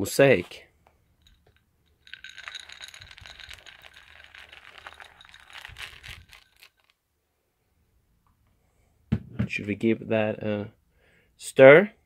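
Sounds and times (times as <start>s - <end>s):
pellets rattling out of bowl: 1.2s - 7.0s
pellets pattering onto foam: 2.0s - 6.9s.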